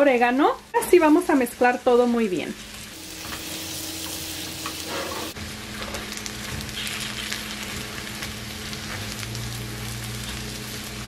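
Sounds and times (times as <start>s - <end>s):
potatoes sizzling in a frying pan: 0.0s - 11.0s
spatula scraping a pan: 4.5s - 5.4s.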